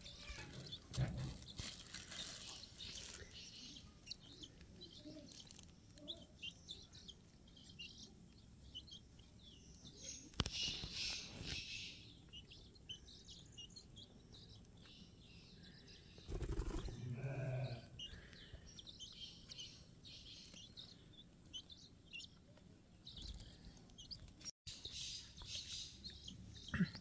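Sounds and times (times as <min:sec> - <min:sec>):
chicks peeping: 0:00.0 - 0:17.0, 0:17.6 - 0:27.0
rustling noise: 0:00.3 - 0:03.4.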